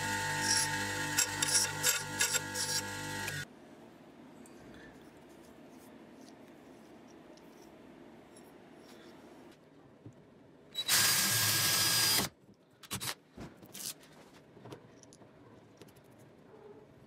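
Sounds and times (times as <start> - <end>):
cordless drill boring plastic: 0.0 - 3.4, 10.8 - 12.3.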